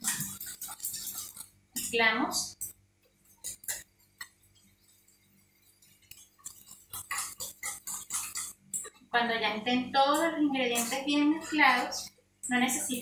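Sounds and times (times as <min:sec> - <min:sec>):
whisk beating batter in bowl: 0:00.0 - 0:13.0.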